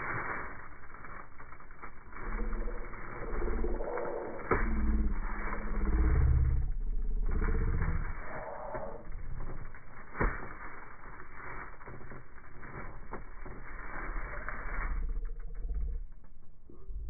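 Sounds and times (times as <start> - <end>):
plastic bags crinkling: 0.0 - 4.4, 9.3 - 14.8
small clicks: 0.0 - 6.1, 6.8 - 16.9.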